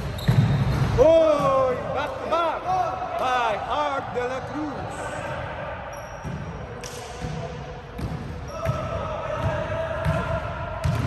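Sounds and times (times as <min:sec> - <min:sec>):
basketball bouncing on court: 0:00.0 - 0:01.7, 0:06.2 - 0:11.0.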